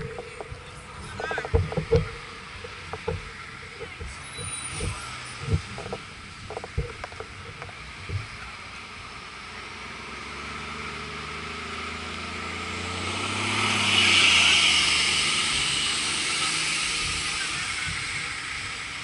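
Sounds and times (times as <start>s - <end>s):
vehicle passing by: 9.8s - 19.0s.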